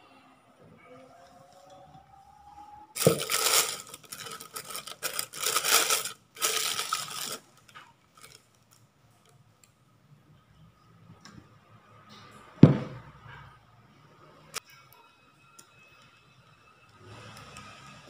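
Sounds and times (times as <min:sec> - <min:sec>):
plastic bag rustling: 0:03.0 - 0:08.5
dull thump: 0:12.6 - 0:13.0.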